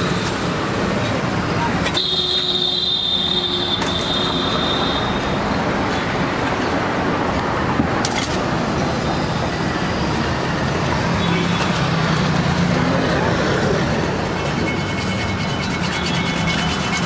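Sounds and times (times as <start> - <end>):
street traffic: 0.0 - 17.0
high squeal: 14.3 - 17.0.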